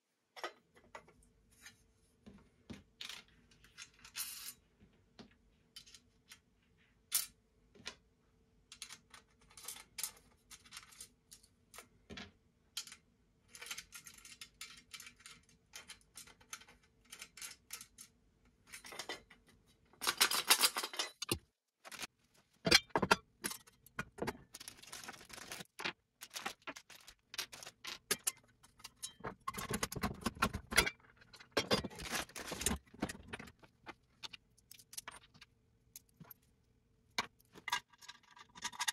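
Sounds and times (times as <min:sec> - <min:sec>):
metal hardware clinking and rattling: 0:20.0 - 0:22.1.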